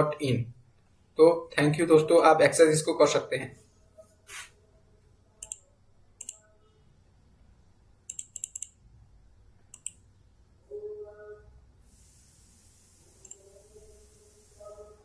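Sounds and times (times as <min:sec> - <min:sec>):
computer mouse clicking: 0:05.4 - 0:05.6, 0:06.2 - 0:06.4, 0:08.1 - 0:08.8, 0:09.7 - 0:10.0, 0:13.2 - 0:13.4.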